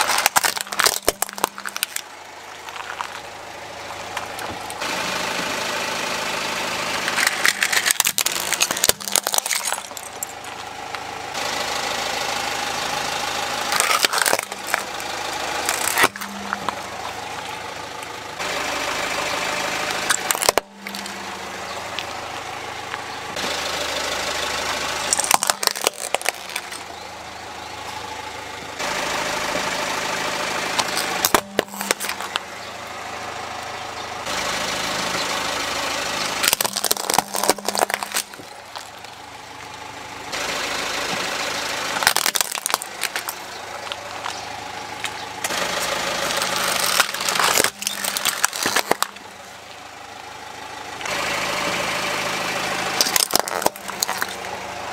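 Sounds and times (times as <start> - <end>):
plastic toys cracking under tyre: 0.0 - 4.8, 7.0 - 11.0, 13.6 - 18.2, 19.9 - 21.2, 25.0 - 27.0, 30.8 - 32.5, 36.4 - 39.7, 41.9 - 49.4, 53.0 - 54.6
car engine running slowly: 0.0 - 54.9.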